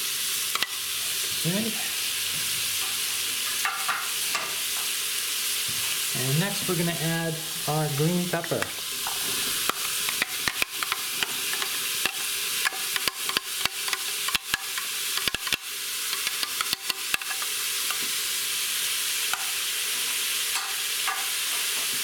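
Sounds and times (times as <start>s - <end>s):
onions sizzling in butter: 0.0s - 22.0s
metal spoon clicks and taps: 9.7s - 18.0s.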